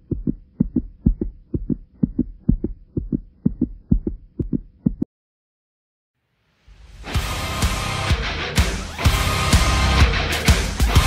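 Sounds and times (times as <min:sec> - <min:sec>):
heartbeat-like thumps: 0:00.0 - 0:05.1.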